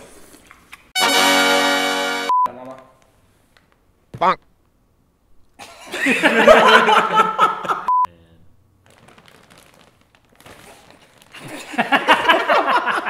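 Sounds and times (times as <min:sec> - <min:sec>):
censor bleep: 0:01.0 - 0:02.5.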